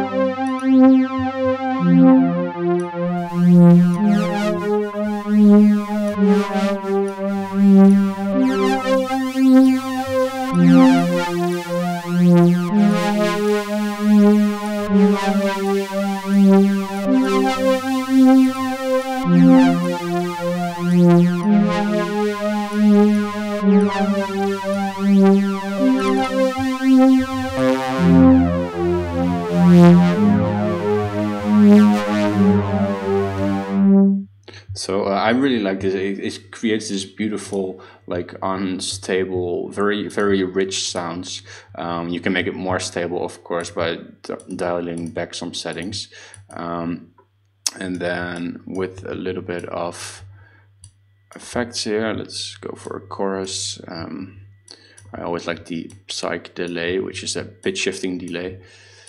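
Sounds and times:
deep synth bass: 0.0 - 34.3
synthesizer pad chords with vibrato: 0.0 - 34.3.

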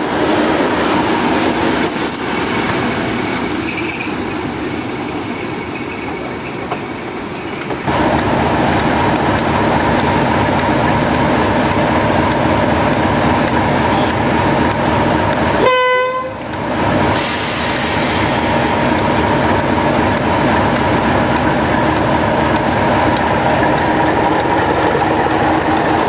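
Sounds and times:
train wheels squealing: 0.0 - 7.9
train horn toot: 15.6 - 16.4.

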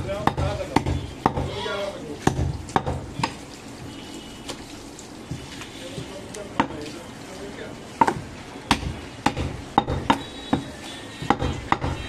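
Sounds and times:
knife chopping on wooden block: 0.2 - 1.5, 2.2 - 3.4, 8.0 - 12.0.

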